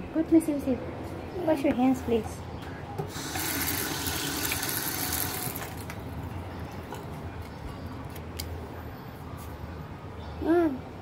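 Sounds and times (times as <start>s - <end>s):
water splashing in a sink: 3.1s - 5.8s
kitchen tap running: 3.1s - 5.9s.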